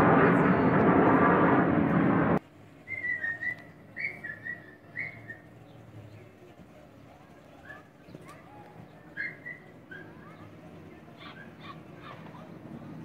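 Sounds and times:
aircraft roaring overhead: 0.0s - 3.4s, 9.4s - 13.0s.

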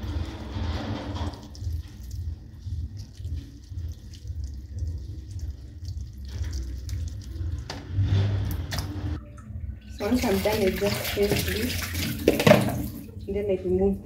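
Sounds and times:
wet squelching and dripping: 0.0s - 9.0s, 9.8s - 13.3s
steady low hum: 0.0s - 10.4s.

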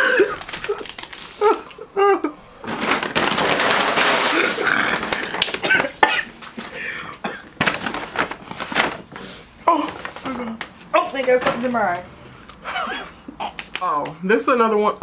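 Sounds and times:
person laughing: 0.0s - 2.4s, 12.6s - 13.7s
paper bag rustling and crinkling: 0.0s - 12.1s.

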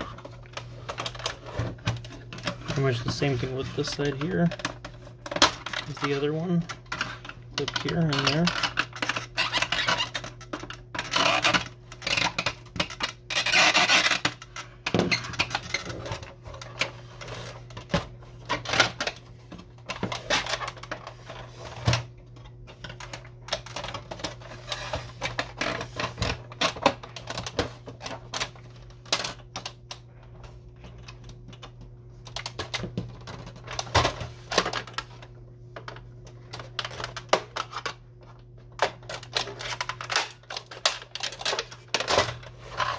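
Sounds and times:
plastic parts clicking and snapping: 0.1s - 30.1s, 30.8s - 42.9s
loud plastic scrape: 6.9s - 17.7s.

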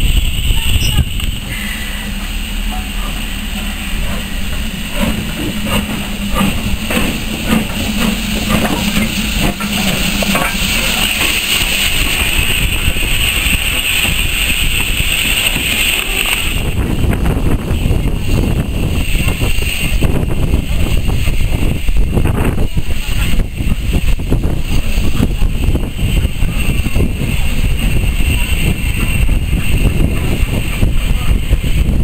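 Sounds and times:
steam hiss: 0.0s - 32.0s
steam locomotive knocks: 2.2s - 17.6s.

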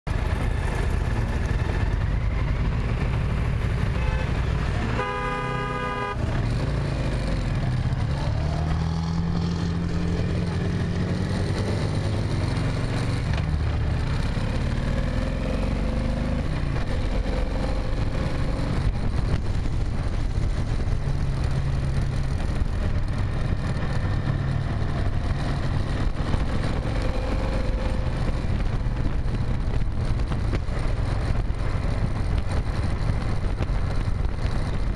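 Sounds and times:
engine and road rumble: 0.0s - 34.9s
engine revving: 0.1s - 34.9s
car horn honking: 3.9s - 6.3s.

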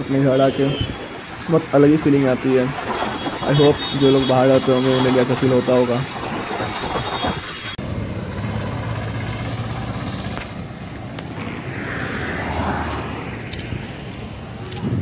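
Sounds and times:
road traffic hum: 0.0s - 15.0s
vehicle passing: 7.8s - 15.0s.

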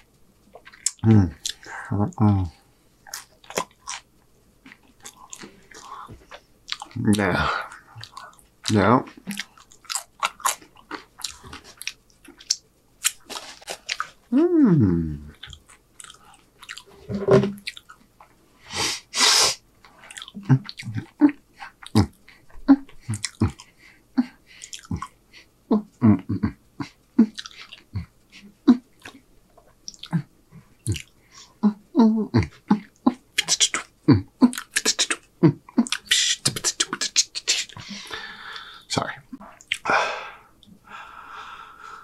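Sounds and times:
beatboxing vocal pops and thumps: 32.3s - 37.8s.

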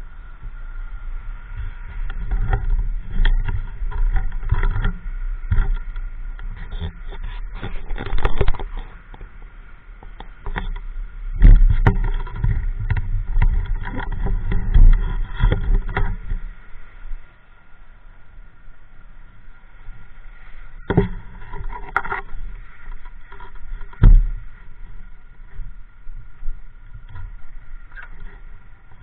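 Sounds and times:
faint motorbike running: 0.0s - 29.0s
wind buffeting microphone: 0.0s - 29.0s.

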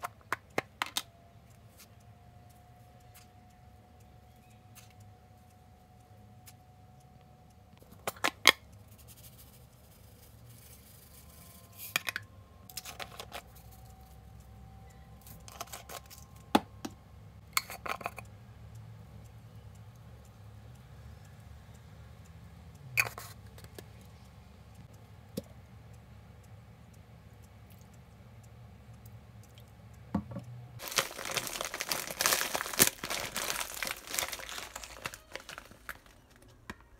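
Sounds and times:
low steady hum: 8.7s - 36.9s.

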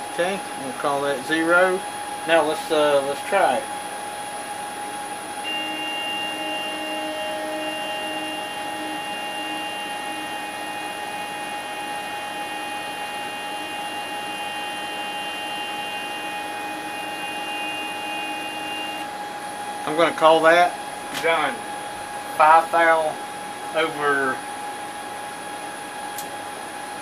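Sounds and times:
constant electrical hum: 0.0s - 27.0s
stepper motor whining: 5.4s - 19.1s.

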